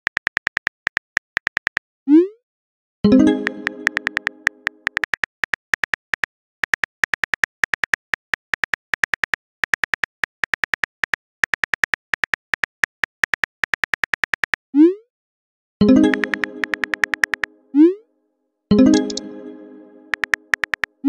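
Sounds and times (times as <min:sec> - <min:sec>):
phone keyboard typing clicks: 0:00.0 - 0:01.8, 0:03.3 - 0:14.6, 0:15.9 - 0:17.5, 0:18.9 - 0:19.2, 0:20.1 - 0:21.0.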